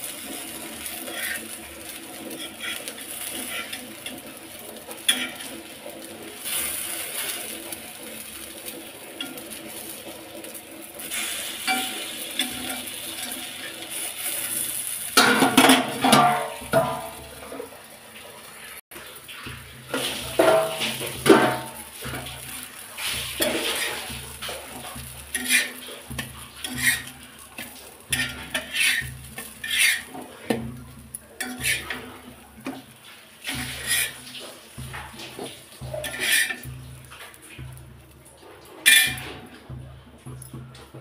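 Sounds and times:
metal spatula scraping a pan: 0.0 - 17.7, 19.3 - 39.8
slices sizzling in a pan: 0.0 - 41.0.

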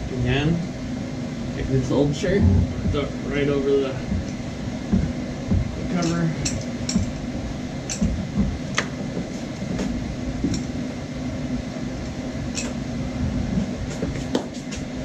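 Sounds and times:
low machine hum: 0.0 - 15.0
clicks and knocks of parts: 7.9 - 8.9.

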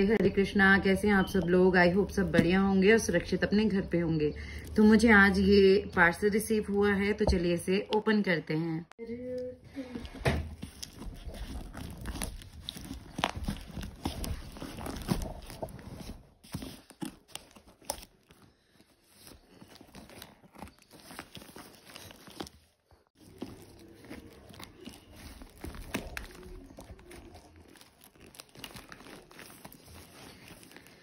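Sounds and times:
plastic wrapping crinkling: 9.8 - 31.0.

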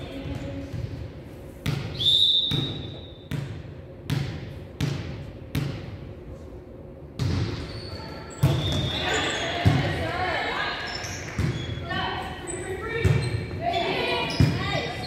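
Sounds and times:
basketball bouncing on gym floor: 0.1 - 6.0, 7.2 - 7.7, 8.3 - 9.0, 11.2 - 11.7, 12.9 - 13.6.

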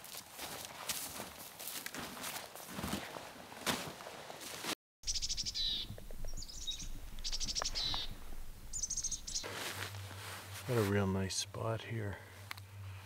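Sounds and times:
footsteps in snow and grass: 0.0 - 4.8, 6.7 - 11.4
small birds trilling: 5.0 - 9.5.

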